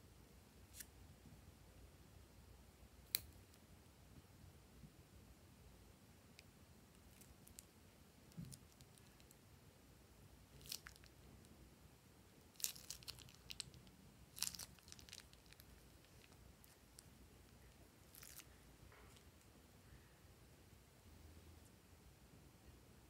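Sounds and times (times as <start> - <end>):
plastic piping bag crinkling: 10.5 - 11.2, 12.5 - 19.3.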